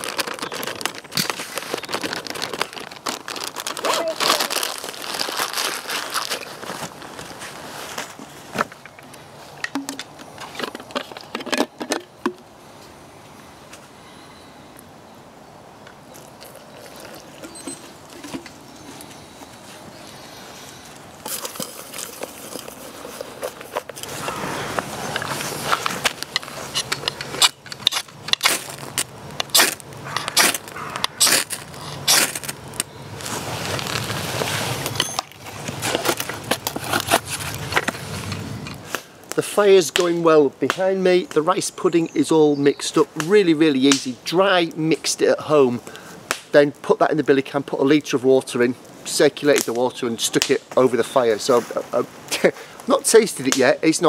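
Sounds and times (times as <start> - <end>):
rustling: 0.0 - 11.6, 16.1 - 39.1
faint steady background noise: 0.0 - 54.0.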